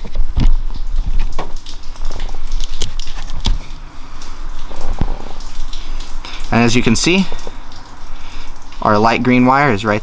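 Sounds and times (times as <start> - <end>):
tape tearing crackle: 0.2 - 3.7.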